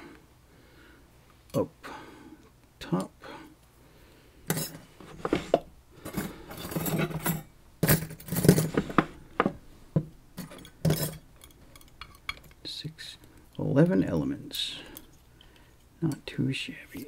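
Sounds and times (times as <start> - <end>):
small metal parts clinking: 6.1 - 8.8, 10.4 - 12.6.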